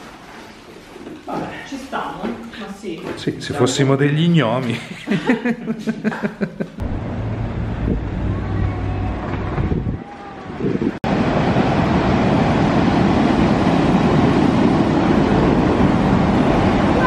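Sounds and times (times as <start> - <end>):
street ambience: 5.4 - 11.0
sea surf breaking: 6.8 - 17.0
wind on microphone: 7.5 - 17.0.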